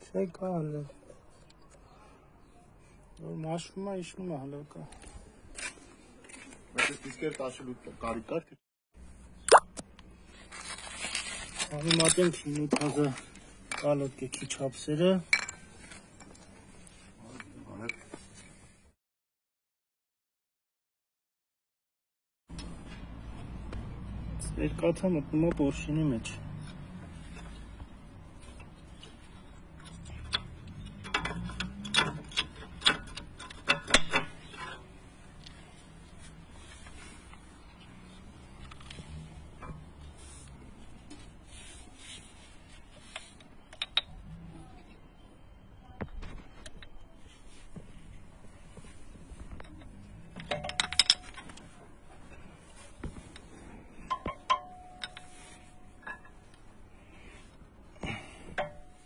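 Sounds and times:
metal clicks and clinks: 0:29.7 - 0:34.8, 0:49.6 - 0:51.6, 0:54.1 - 0:55.4.

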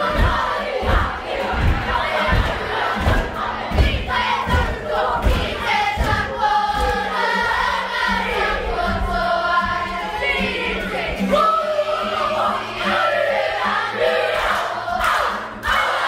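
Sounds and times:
low thumps: 0:00.0 - 0:09.8
acoustic guitar: 0:00.0 - 0:16.0
children singing: 0:00.0 - 0:16.0.

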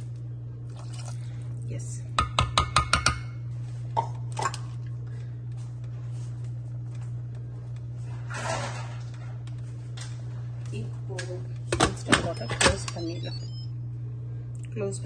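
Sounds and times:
steady low hum: 0:00.0 - 0:15.0
wooden spoon knocking on metal pot: 0:02.2 - 0:03.2.

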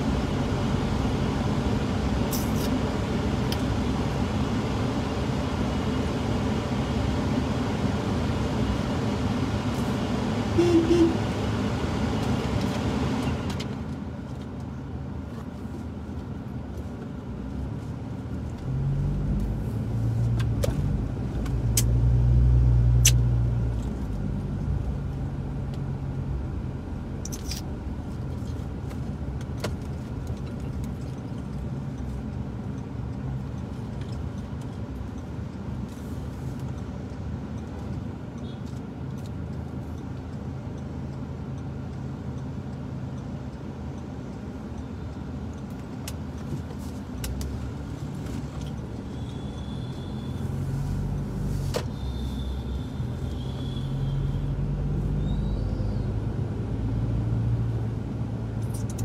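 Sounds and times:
car engine and road noise: 0:00.0 - 0:59.0
short high-pitched tones: 0:10.6 - 0:11.2.

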